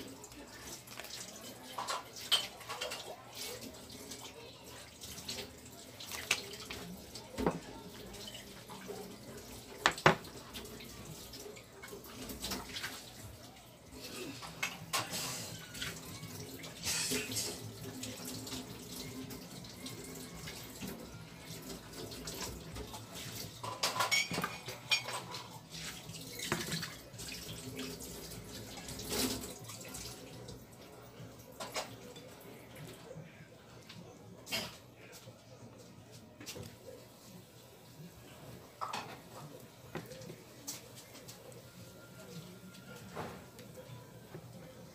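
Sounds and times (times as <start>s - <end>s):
rustling and wet handling: 0.0s - 14.9s, 17.2s - 33.0s, 34.8s - 44.9s
fish knocking against plates: 9.8s - 10.4s.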